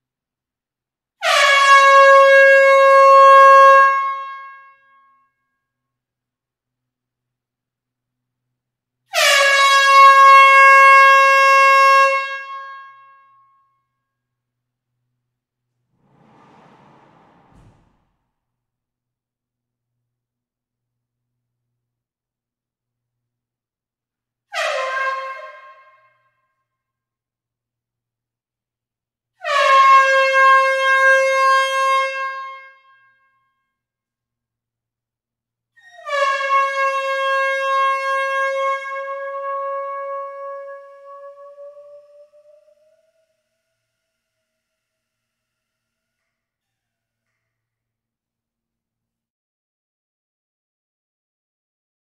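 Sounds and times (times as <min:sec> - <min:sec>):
air horn blast in hall: 0:01.2 - 0:04.6, 0:09.1 - 0:13.0, 0:15.9 - 0:18.2, 0:29.4 - 0:32.8, 0:36.2 - 0:46.2
air horn blast: 0:16.0 - 0:18.2.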